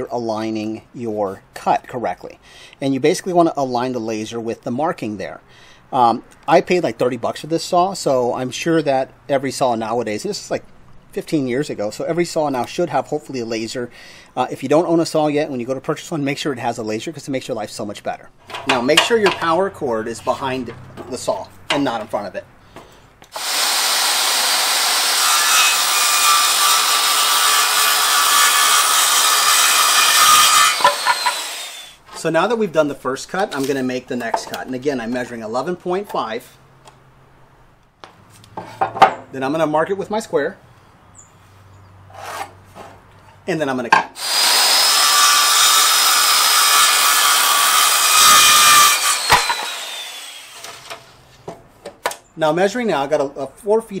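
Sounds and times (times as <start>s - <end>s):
circular saw cutting wood: 23.3s - 32.3s, 44.2s - 51.2s.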